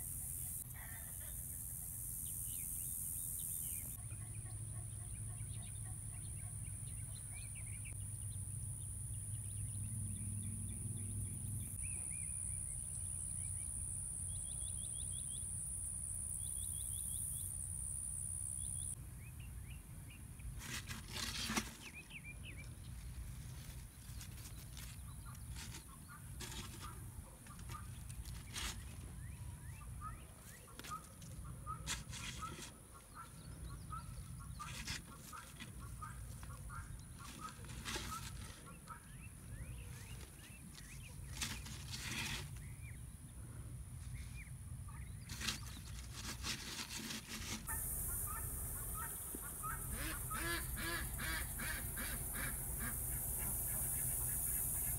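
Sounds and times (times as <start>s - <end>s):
poultry calling: 30.0s - 39.8s, 47.6s - 54.9s.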